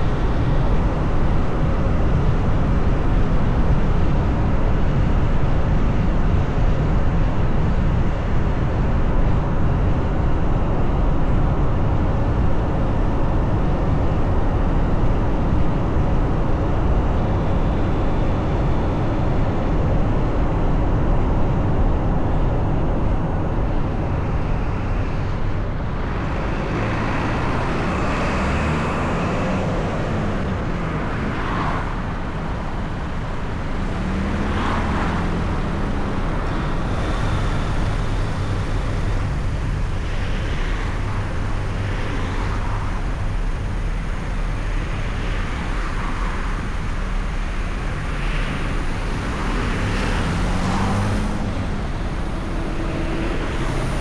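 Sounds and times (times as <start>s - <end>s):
car engine and road noise: 0.0s - 54.0s
whooshing of passing traffic: 0.0s - 54.0s.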